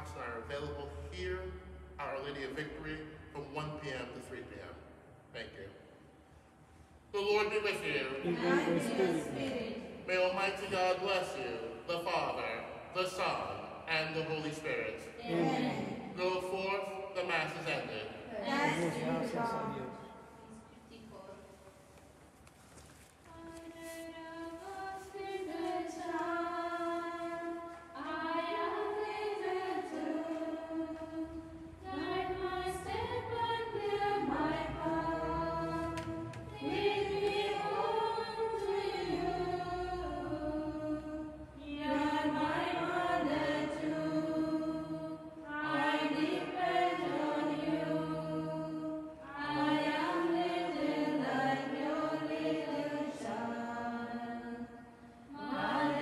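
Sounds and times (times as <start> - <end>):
women singing a hymn: 7.8 - 10.0, 15.1 - 16.2, 18.2 - 21.4, 23.3 - 56.0.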